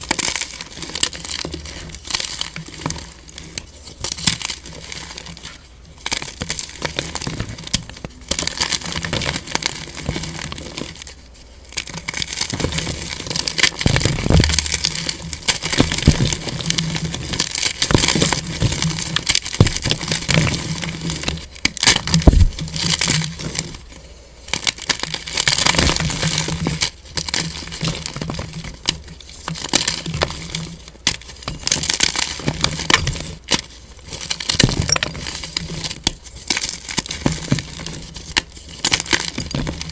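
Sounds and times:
chalk crunching and snapping: 0:00.0 - 0:23.9, 0:24.5 - 0:39.9.

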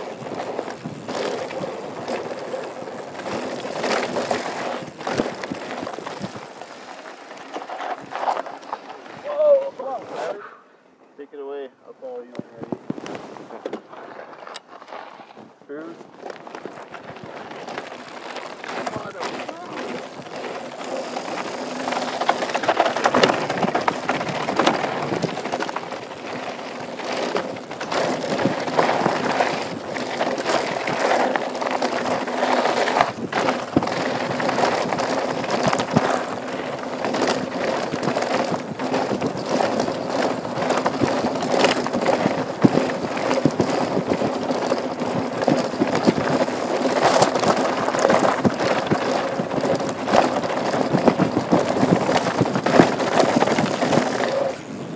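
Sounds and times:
bike knocking and rattling: 0:00.0 - 0:10.0, 0:12.3 - 0:54.9
tyres crunching over dirt and rocks: 0:00.0 - 0:10.1, 0:12.3 - 0:54.8.

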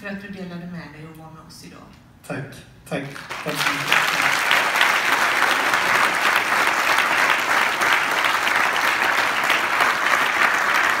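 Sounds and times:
audience applauding: 0:03.1 - 0:11.0.

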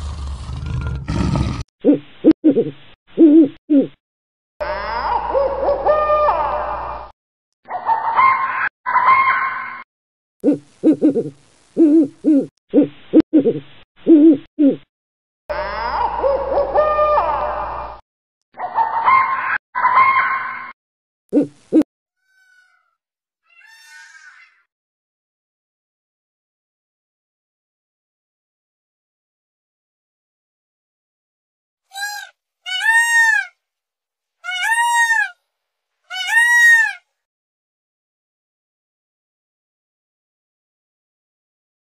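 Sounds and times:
owl hooting: 0:31.9 - 0:33.5
owl warbling call: 0:31.9 - 0:33.5, 0:34.5 - 0:35.4, 0:36.1 - 0:37.0.

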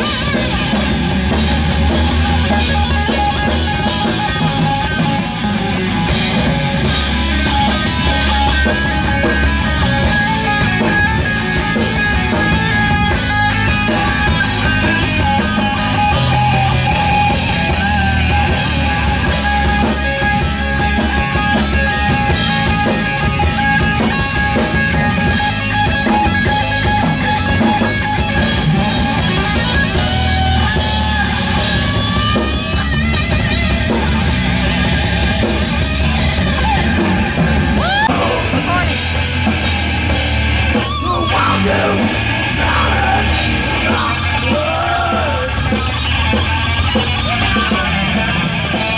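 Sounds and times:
drum kit: 0:00.0 - 0:48.9
heavy metal electric guitar solo: 0:00.0 - 0:48.9.

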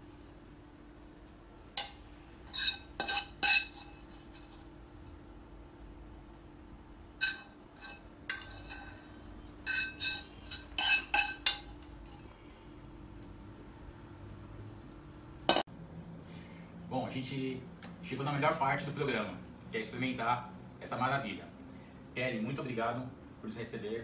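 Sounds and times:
fork scraping and tapping a pan: 0:01.8 - 0:04.7, 0:07.2 - 0:12.2.

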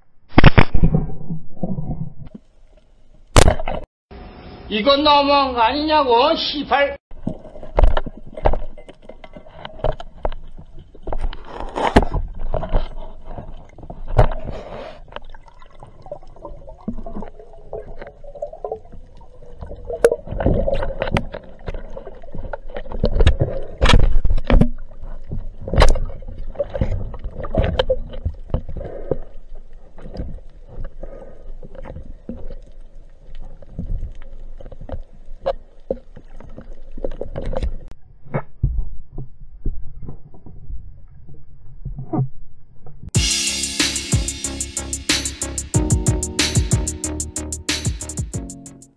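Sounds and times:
underwater gurgling and rumbling: 0:00.1 - 0:03.8, 0:07.1 - 0:43.1
knocks and clicks underwater: 0:00.3 - 0:02.5, 0:07.1 - 0:42.3.

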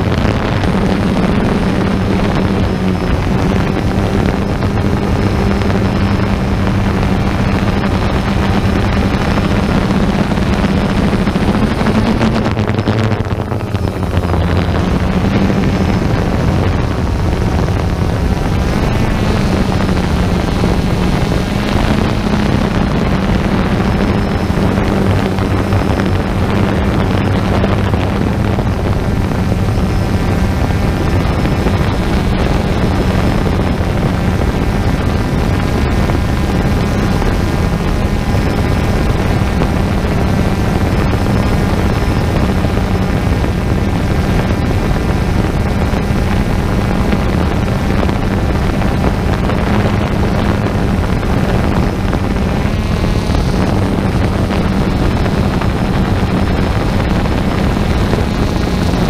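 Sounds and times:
drone propellers whirring: 0:00.0 - 0:59.0.

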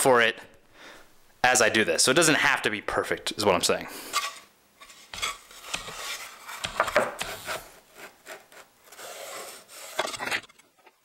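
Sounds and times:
plywood scraping: 0:04.0 - 0:11.0
wooden knocks: 0:06.6 - 0:07.3.

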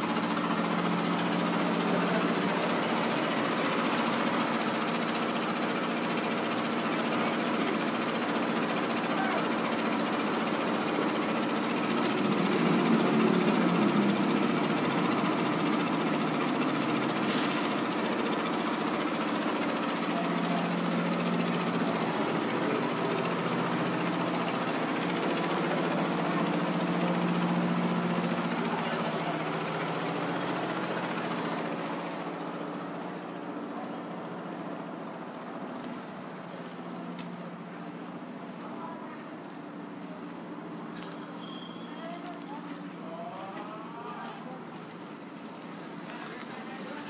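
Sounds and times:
passing vehicle engines humming: 0:10.6 - 0:38.0.

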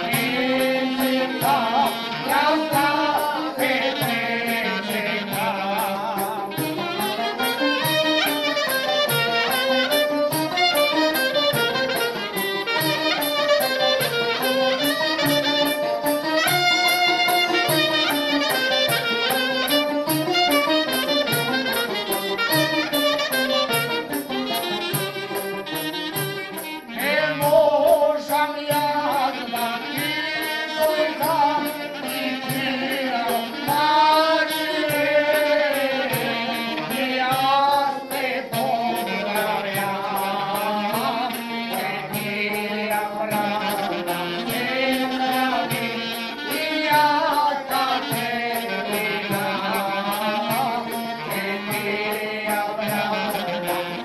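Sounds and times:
man singing ornamented melody: 0:00.0 - 0:16.3, 0:26.5 - 0:54.0
clarinet: 0:00.0 - 0:54.0
violin: 0:00.0 - 0:54.0.

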